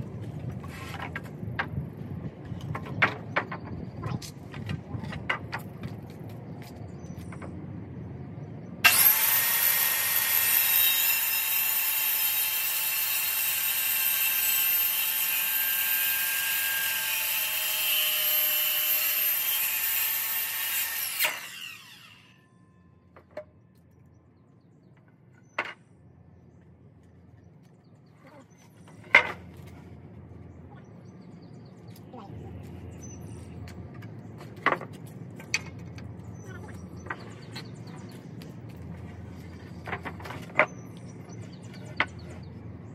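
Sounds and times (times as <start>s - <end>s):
electric power tool whining: 8.9s - 22.4s.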